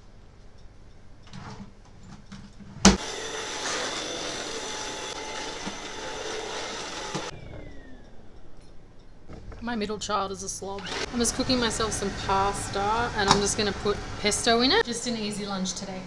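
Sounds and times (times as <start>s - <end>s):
stick vacuum cleaner running: 3.0s - 8.2s, 10.7s - 14.8s.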